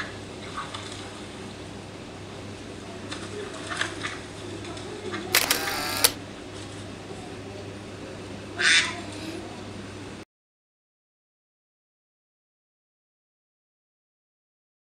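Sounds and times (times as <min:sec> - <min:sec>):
camera shutter sound: 0:05.4 - 0:06.2.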